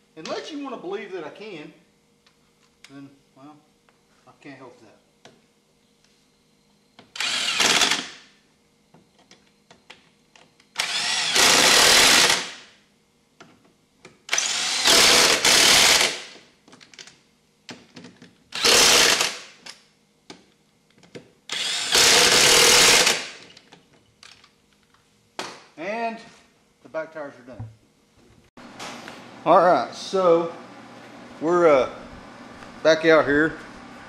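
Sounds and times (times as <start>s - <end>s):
power tool bursts: 7.1s - 8.3s, 10.8s - 12.7s, 14.3s - 16.4s, 18.5s - 19.6s, 21.5s - 23.4s.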